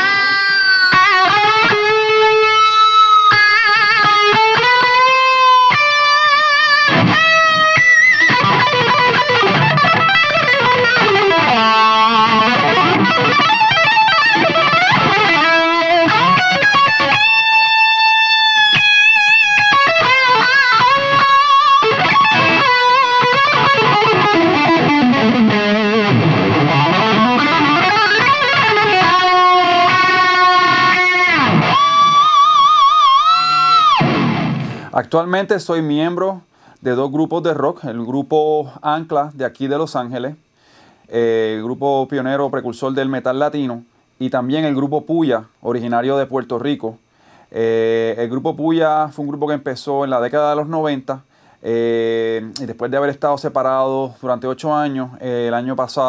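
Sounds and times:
distorted electric guitar solo: 0.0s - 34.9s.

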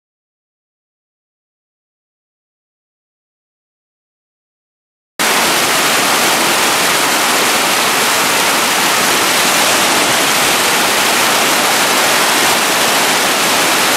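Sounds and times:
water rushing over boulders: 5.2s - 13.9s.

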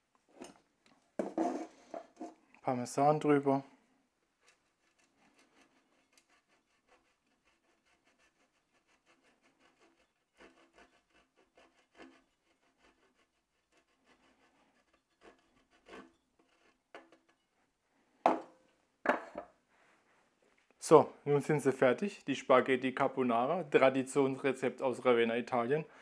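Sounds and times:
cheese grating on box grater: 4.4s - 17.4s.

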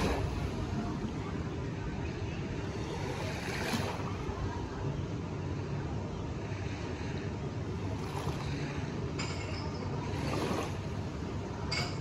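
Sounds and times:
wind on microphone: 0.0s - 5.1s
steady low hum: 0.0s - 12.0s
water lapping at shoreline: 0.0s - 12.0s.

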